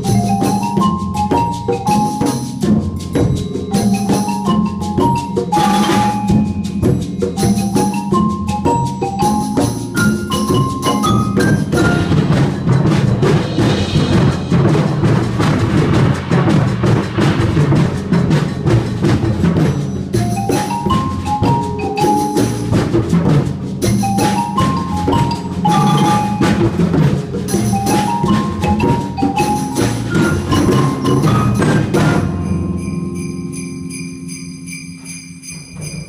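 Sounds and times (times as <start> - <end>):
drums beating: 0.0 - 36.0
marimba runs: 0.0 - 36.0
high metallic ringing: 32.4 - 36.0.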